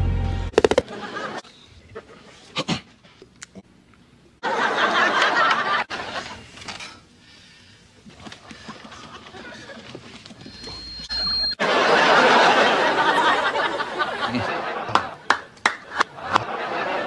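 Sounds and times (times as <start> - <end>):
studio audience laughing: 0.7 - 1.4, 4.4 - 6.5, 8.6 - 10.0, 11.4 - 17.0.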